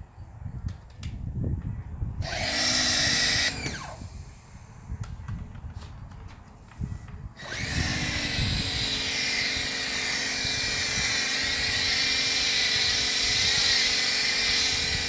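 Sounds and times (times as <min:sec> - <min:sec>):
pressure washer spray hissing: 0:08.1 - 0:15.0.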